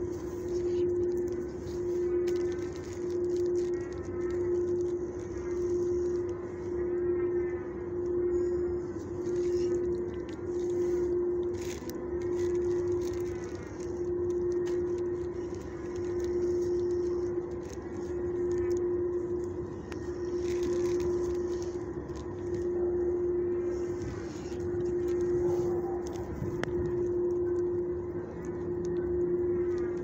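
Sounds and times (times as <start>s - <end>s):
low machine hum: 0.0s - 30.0s.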